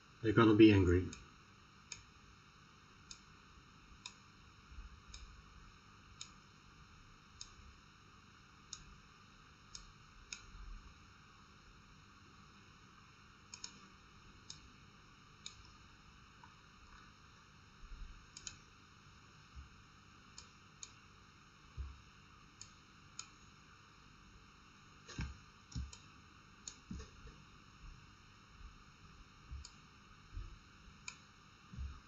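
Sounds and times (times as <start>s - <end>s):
faint steady hiss: 0.0s - 32.0s
computer mouse clicking: 9.7s - 10.5s, 13.5s - 13.8s, 15.4s - 15.7s, 18.3s - 18.6s, 25.1s - 27.3s.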